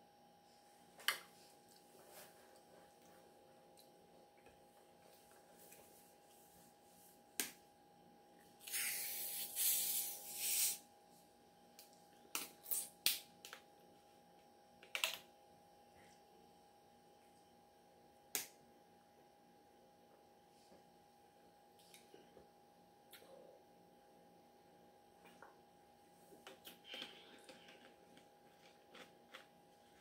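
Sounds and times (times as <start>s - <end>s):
soda carbonation hissing: 8.6s - 10.8s.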